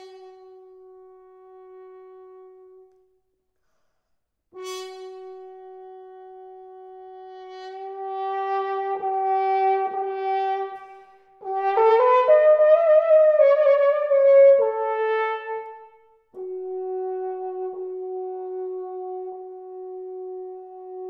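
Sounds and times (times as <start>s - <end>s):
french horn long note: 16.4s - 21.0s.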